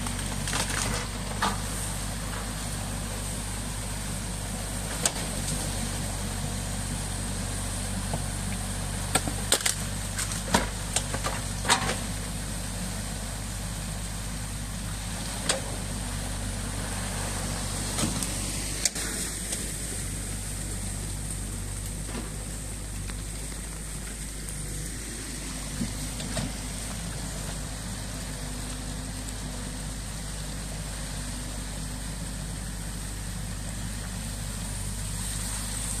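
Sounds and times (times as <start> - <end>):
excavator diesel engine running: 0.0 - 36.0
sharp knocks and cracks: 9.1 - 12.0
water rushing: 14.8 - 36.0.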